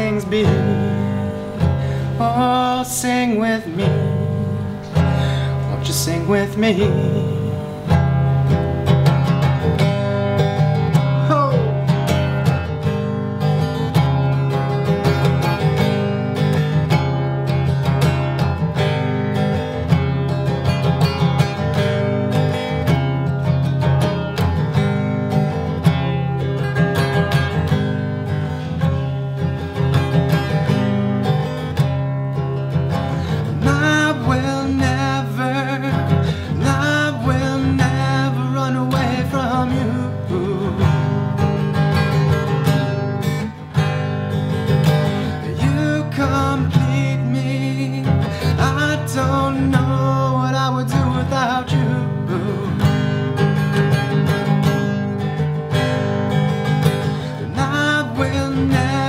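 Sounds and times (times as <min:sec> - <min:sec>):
wordless vocals: 0:00.0 - 0:08.5, 0:10.9 - 0:12.5, 0:33.0 - 0:41.7, 0:44.9 - 0:53.5, 0:56.9 - 0:59.0
acoustic guitar strumming: 0:00.0 - 0:59.0.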